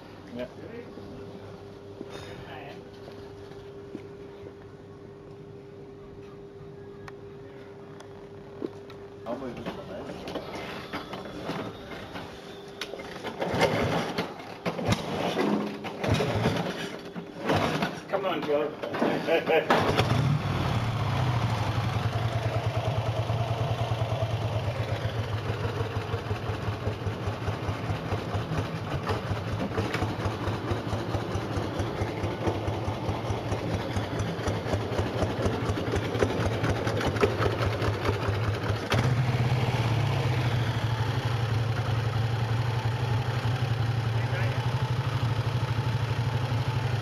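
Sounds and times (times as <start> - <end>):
motorcycle engine idling: 20.1 - 47.0.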